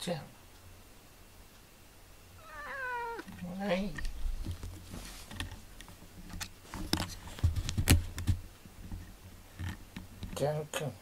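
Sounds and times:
small clicks and knocks: 0:03.2 - 0:10.5.

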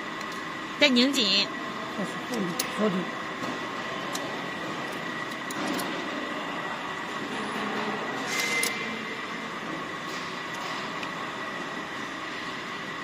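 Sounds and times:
machinery hum: 0:00.0 - 0:13.0.

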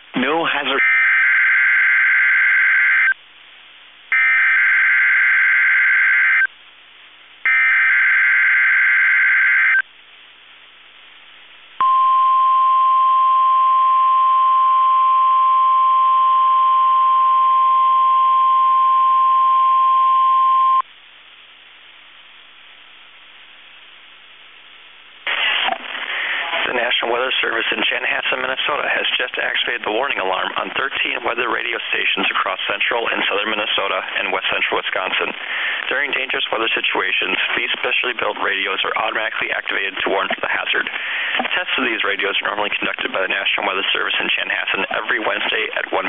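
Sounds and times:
synthesized announcer voice: 0:00.1 - 0:01.1, 0:26.2 - 0:46.0
steady high alarm tone: 0:00.8 - 0:03.2, 0:04.1 - 0:06.5, 0:07.5 - 0:09.8.

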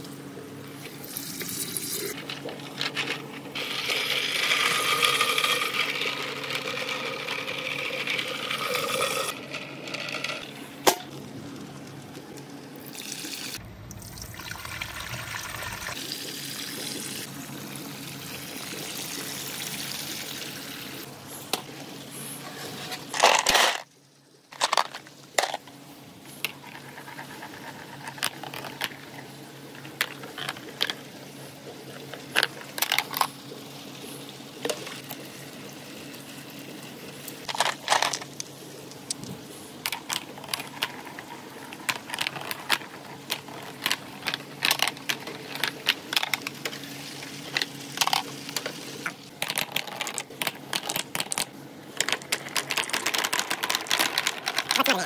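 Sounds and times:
running water: 0:12.8 - 0:17.3.

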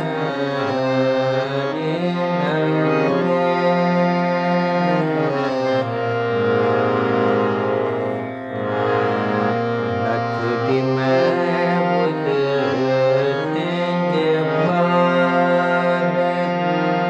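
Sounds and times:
man singing: 0:00.0 - 0:05.7, 0:10.0 - 0:17.0
harmonium chords: 0:00.0 - 0:17.0.

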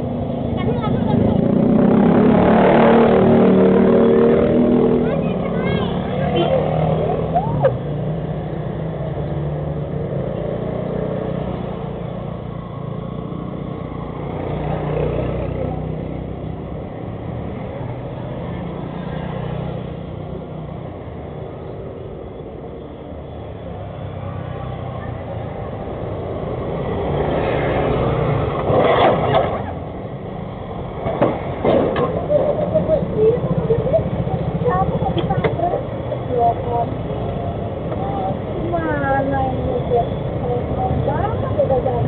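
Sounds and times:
vehicles passing by: 0:00.0 - 0:42.0
motorbike crashing clatter: 0:28.5 - 0:29.8, 0:31.0 - 0:32.4.

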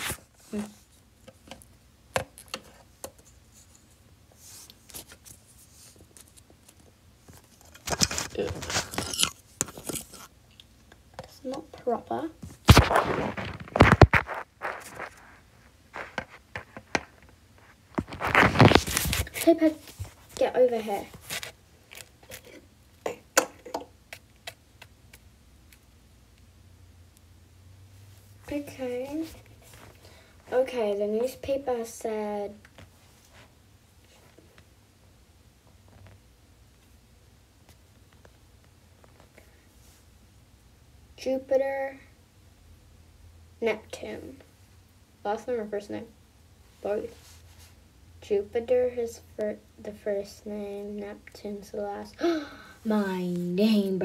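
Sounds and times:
rustling and knocking: 0:12.4 - 0:20.4.

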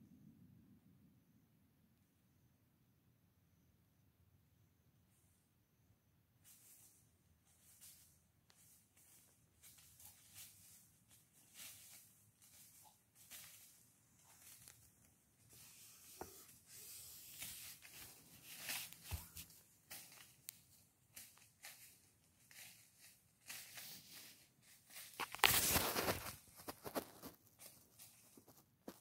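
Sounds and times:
dry leaves rustling and crackling: 0:06.5 - 0:15.6, 0:17.3 - 0:29.0.

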